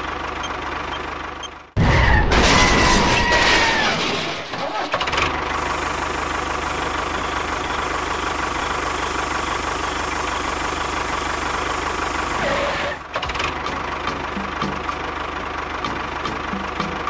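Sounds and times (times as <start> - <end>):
tractor engine knocking: 13.2 - 17.0.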